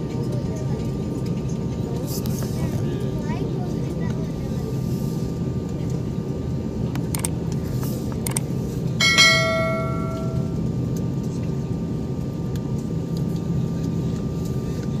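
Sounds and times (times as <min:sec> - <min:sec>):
bell-like ding: 0:09.0 - 0:10.6.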